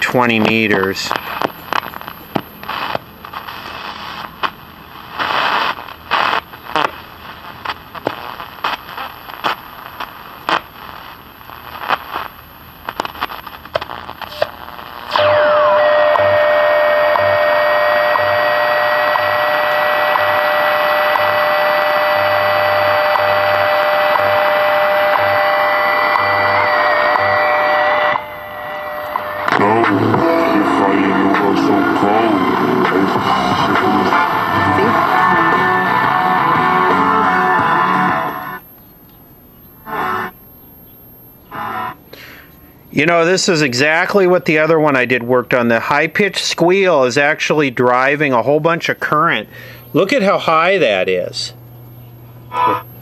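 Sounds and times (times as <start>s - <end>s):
radio static with crackles: 0.0s - 53.0s
loud steady multi-tone whistle: 15.1s - 42.2s.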